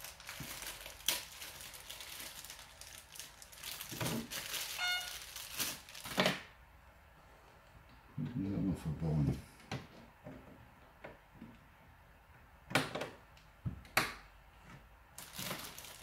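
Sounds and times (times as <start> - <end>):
plastic packaging rustling: 0.0 - 6.5, 15.2 - 16.0
short squeak: 4.8 - 5.2.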